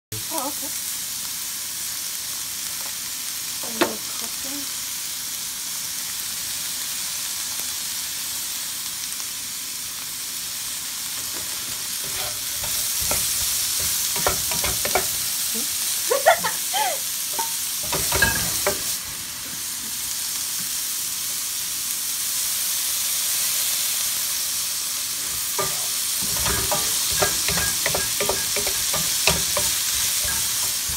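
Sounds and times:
vegetables sizzling in a frying pan: 0:00.1 - 0:30.9
wooden spatula scraping a pan: 0:11.2 - 0:15.2, 0:25.2 - 0:30.9.

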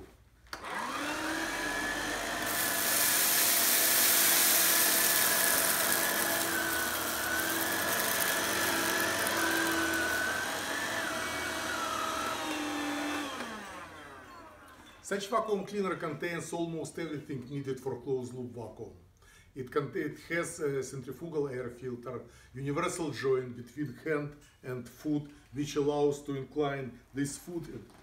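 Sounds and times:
vacuum cleaner motor whine: 0:00.6 - 0:15.0.

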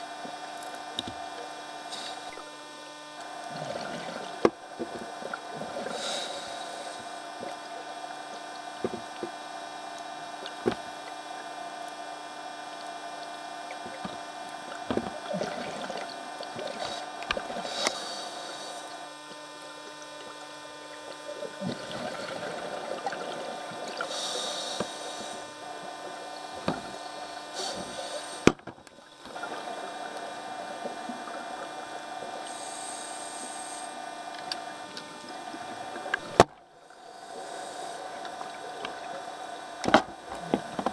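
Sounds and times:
steady mechanical hum: 0:00.0 - 0:40.9
exhaled regulator bubbles: 0:03.2 - 0:06.3, 0:12.8 - 0:28.4, 0:29.0 - 0:34.0.

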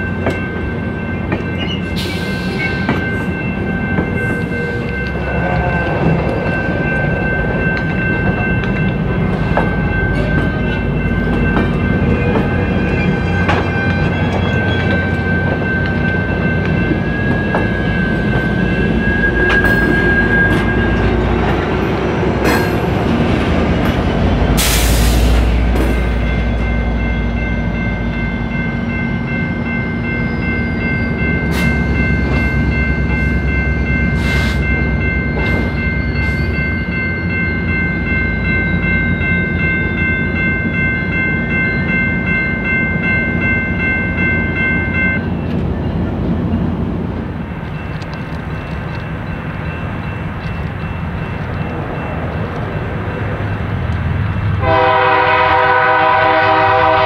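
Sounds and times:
diesel train rumbling by: 0:00.0 - 0:57.0
locomotive air horn: 0:54.6 - 0:57.0.

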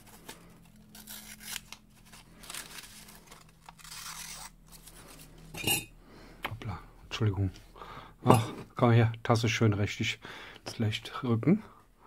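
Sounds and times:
knife slicing through paper: 0:00.0 - 0:04.9.

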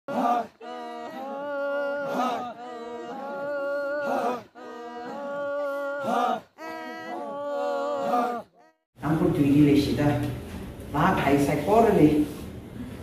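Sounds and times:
chanted singing: 0:00.1 - 0:08.8.

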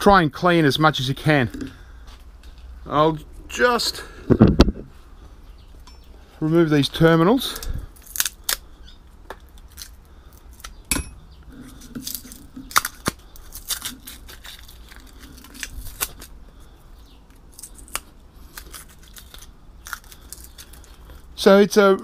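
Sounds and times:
light tearing: 0:08.0 - 0:08.7, 0:11.5 - 0:16.7, 0:17.3 - 0:21.3.

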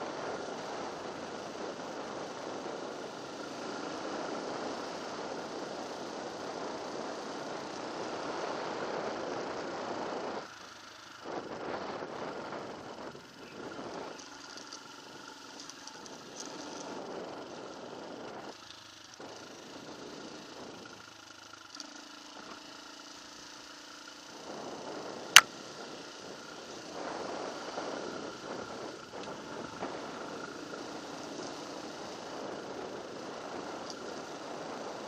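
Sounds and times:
vehicle engine running at low revs: 0:00.0 - 0:35.0.

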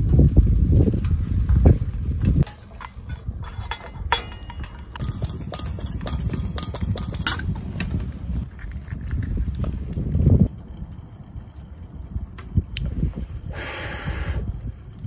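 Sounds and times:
low rumble: 0:00.0 - 0:13.5
metal bowl and chopsticks clinking: 0:02.4 - 0:07.5.

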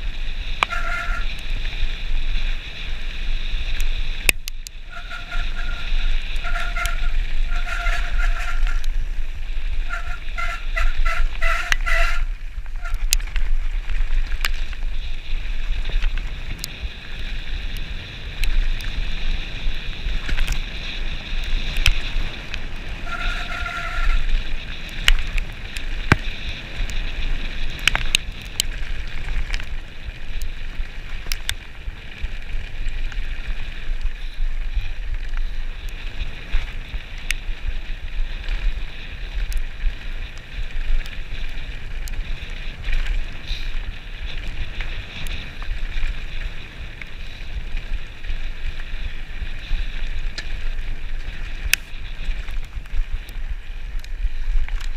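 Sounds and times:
bike rattling: 0:00.0 - 0:54.9
tyres crunching over gravel: 0:00.0 - 0:54.9
wind buffeting microphone: 0:00.0 - 0:54.9.

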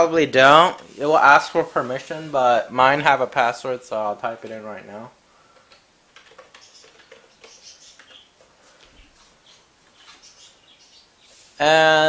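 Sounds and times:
computer keyboard typing: 0:05.6 - 0:08.2.

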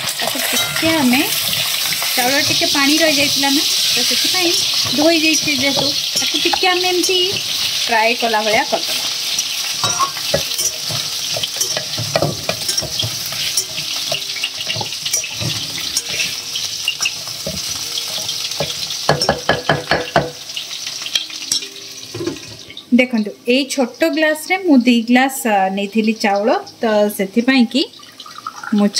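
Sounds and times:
spoon scraping a pot: 0:00.0 - 0:20.1
rice sizzling in hot ghee: 0:00.0 - 0:28.9.

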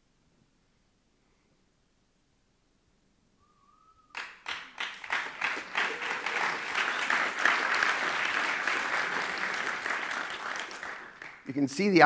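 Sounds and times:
audience applause: 0:04.2 - 0:12.0.

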